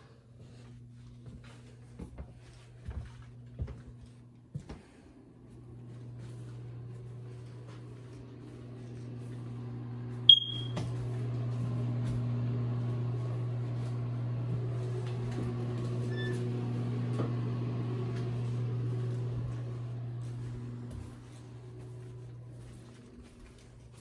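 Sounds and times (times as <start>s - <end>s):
high-pitched electronic beep: 10.3s - 10.8s.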